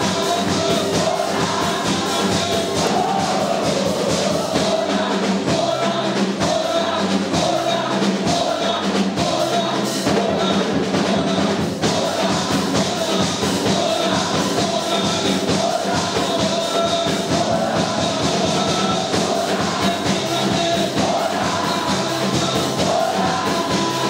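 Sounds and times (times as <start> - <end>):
live band with drums and keyboard: 0.0 - 24.0
men's group singing gospel: 0.0 - 24.0.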